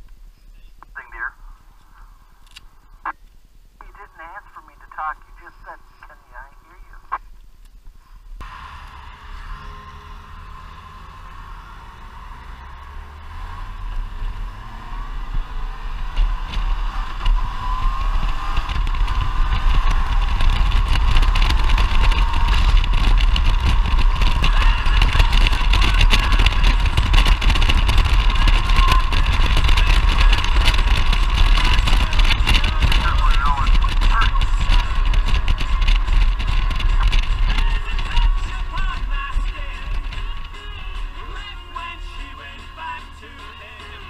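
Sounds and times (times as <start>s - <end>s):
wind rushing over microphone: 8.3s - 41.5s
motorcycle engine accelerating: 8.4s - 44.0s.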